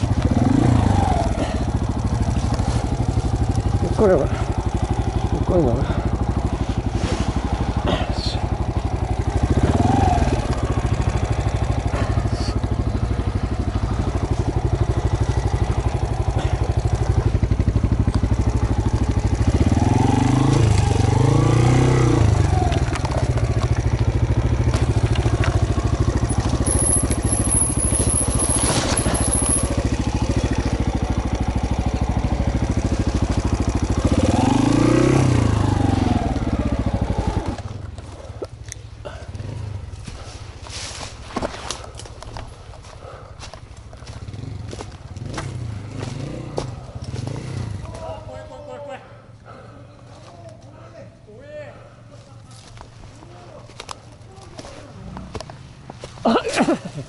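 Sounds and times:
off-road motorcycle engine revving: 0.0 - 50.9, 51.7 - 57.0
tyres over leaves: 6.5 - 8.4, 24.6 - 30.7, 39.8 - 45.3.

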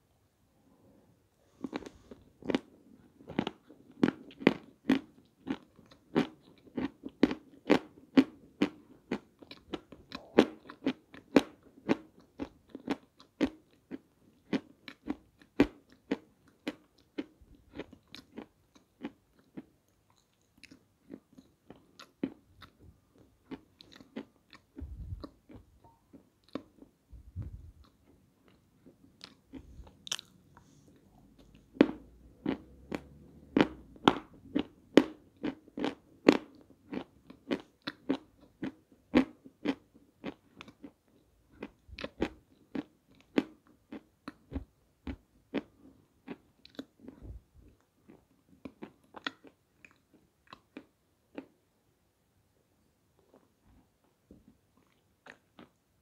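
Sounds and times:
chewing crunchy clay: 27.8 - 30.8.

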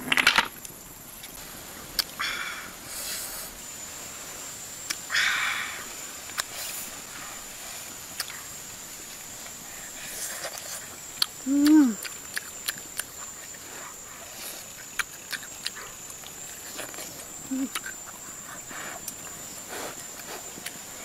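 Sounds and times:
chewing and lip smacks: 8.1 - 8.5, 10.3 - 20.9
person humming mm: 11.4 - 12.1, 17.5 - 17.8.

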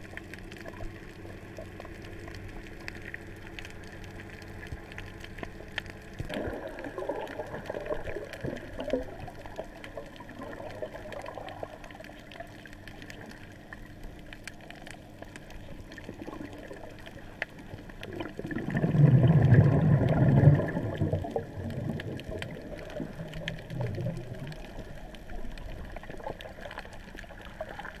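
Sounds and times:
muffled underwater wash: 0.0 - 28.0
deep gurgling rush: 6.2 - 9.4, 18.0 - 26.8
faint clicks: 7.6 - 18.4.

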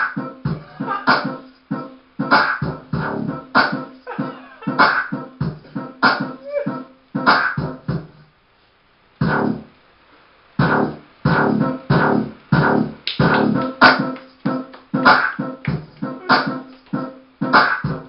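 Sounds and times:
dance music with strong beat: 0.0 - 4.0, 4.6 - 6.5, 7.2 - 8.2, 10.6 - 18.0.

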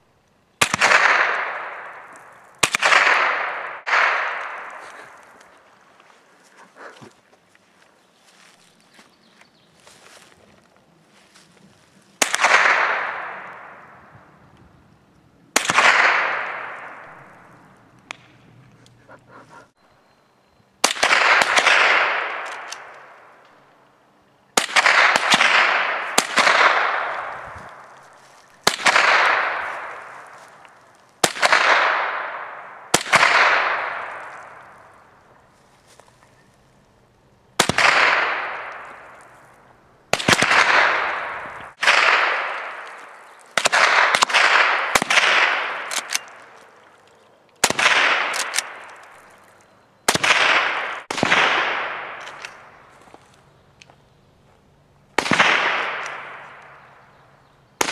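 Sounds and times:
rifle shots with echo: 0.6 - 5.6, 12.2 - 14.3, 15.5 - 18.5, 20.8 - 23.6, 24.6 - 35.1, 37.6 - 46.8, 47.6 - 52.9, 55.1 - 57.2.

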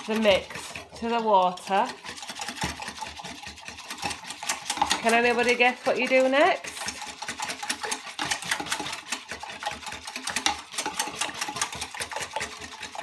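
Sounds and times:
utensil stirring in glass jug: 0.0 - 13.0.

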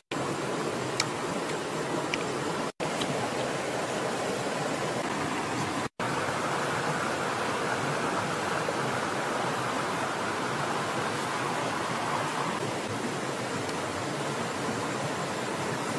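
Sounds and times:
river rushing: 0.0 - 15.9.

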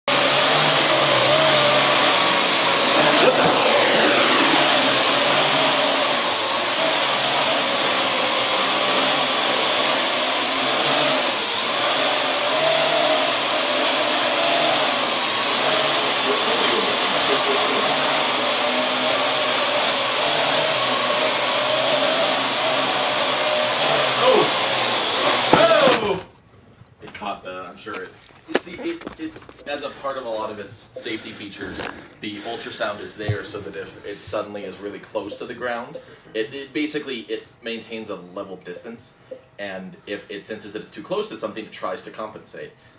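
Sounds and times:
quadcopter propellers whirring: 0.1 - 26.0.

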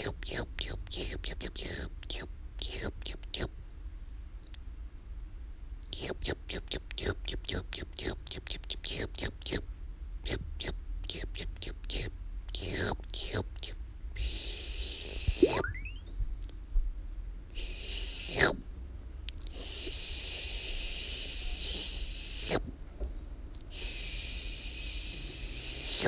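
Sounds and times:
mouth hissing shhh sounds: 10.3 - 15.7, 17.5 - 18.6, 19.4 - 22.7, 23.6 - 26.0
mouth whistling swoops: 15.3 - 16.1.

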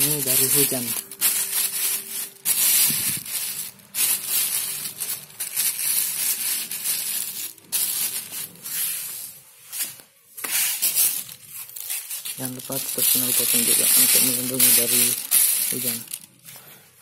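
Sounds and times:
plastic bag crinkling: 0.0 - 10.0, 10.6 - 16.7.

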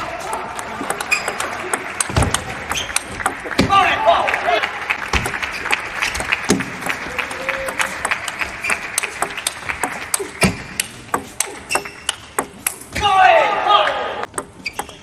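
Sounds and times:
table tennis ball clicks: 0.2 - 3.6, 7.7 - 13.0, 14.2 - 15.0
people clapping: 0.3 - 12.1.

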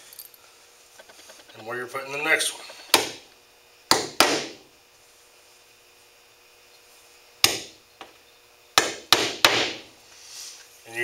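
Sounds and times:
hammer tapping nails: 8.8 - 9.8.

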